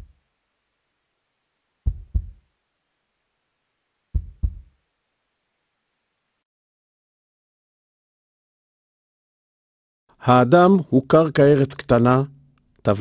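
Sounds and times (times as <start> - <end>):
heartbeat thuds: 1.8 - 2.4, 4.1 - 4.7.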